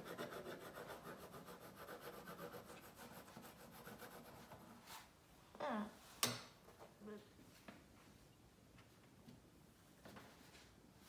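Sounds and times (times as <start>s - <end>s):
pencil scratching on paper: 0.0s - 5.1s.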